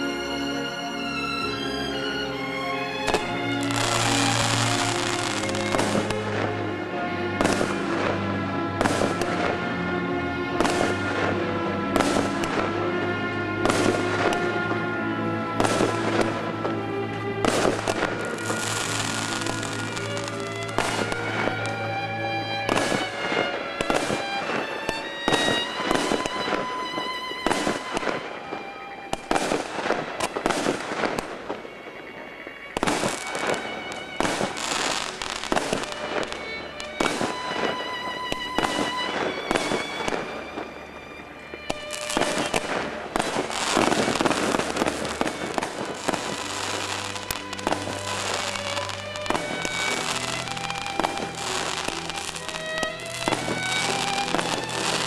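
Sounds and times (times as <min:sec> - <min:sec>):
background music: 0:00.0 - 0:55.0.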